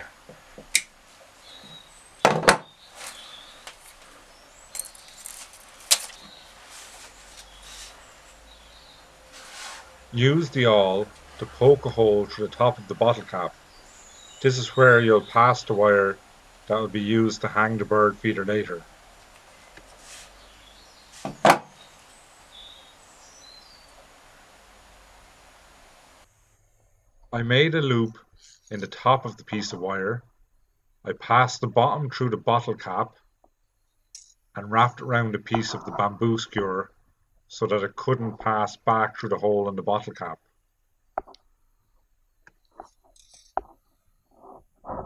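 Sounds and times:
faint scraping on plastic: 5.1s - 8.4s, 9.3s - 10.0s, 19.6s - 20.5s.

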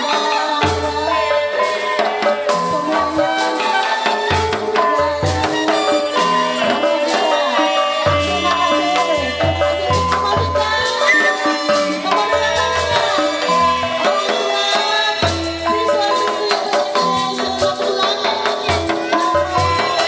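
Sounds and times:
metallophone melody: 11.0s - 12.9s.

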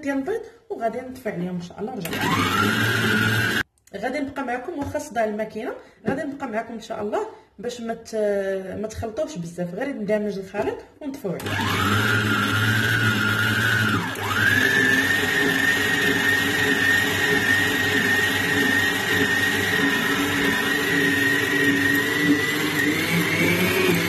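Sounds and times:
stand mixer motor whine: 2.1s - 3.6s, 11.4s - 24.0s.

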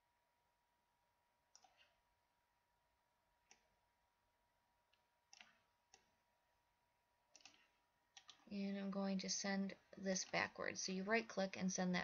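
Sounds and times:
computer mouse clicks: 1.5s - 2.0s, 3.4s - 3.8s, 4.9s - 6.2s, 7.3s - 8.6s, 10.0s - 11.0s.

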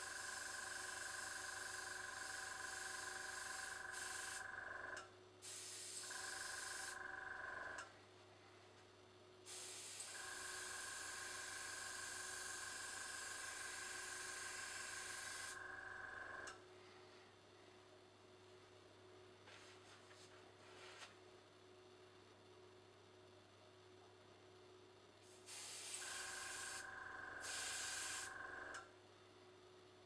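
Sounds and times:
airbrush compressor whining: 0.0s - 4.9s, 5.8s - 7.8s, 9.5s - 16.5s, 25.4s - 28.8s
airbrush hissing: 1.7s - 4.4s, 5.4s - 7.0s, 9.5s - 15.6s, 25.4s - 28.4s.

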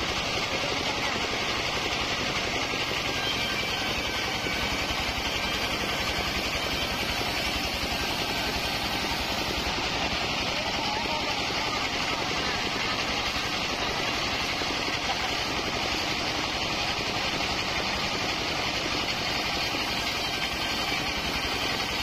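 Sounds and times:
diesel engine throbbing: 0.0s - 22.0s
band saw blade hissing: 3.1s - 9.9s.

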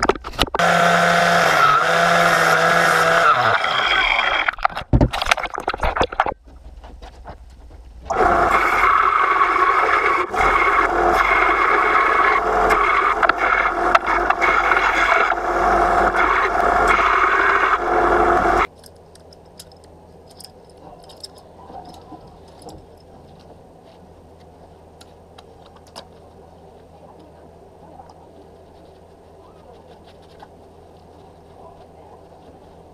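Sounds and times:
belt sander grinding metal: 0.6s - 4.6s, 8.1s - 18.7s.

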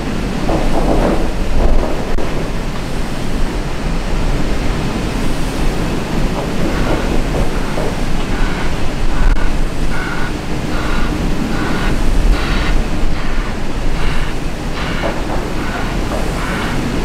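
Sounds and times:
wind rumble on microphone: 0.0s - 17.0s
wheel loader diesel engine: 2.1s - 17.0s
reversing alarm beeping: 6.6s - 17.0s.

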